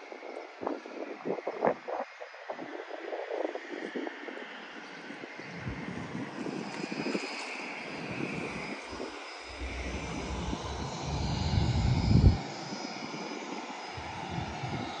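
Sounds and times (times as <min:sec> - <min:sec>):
faint high whine: 0:00.0 - 0:15.0
aircraft engines droning: 0:02.7 - 0:15.0
low rumble: 0:08.9 - 0:12.7, 0:14.0 - 0:14.9.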